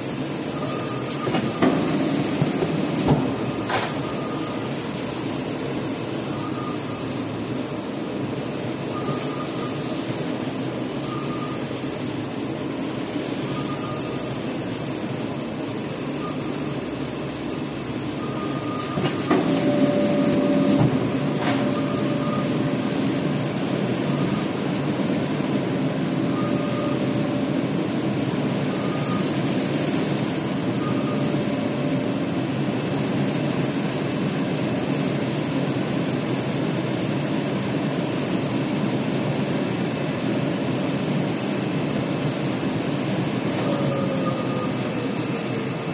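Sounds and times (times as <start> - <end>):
printer running: 0.0 - 7.9, 9.0 - 38.6, 39.4 - 45.9
faint short tone: 11.0 - 11.6, 13.5 - 14.3, 26.4 - 27.1.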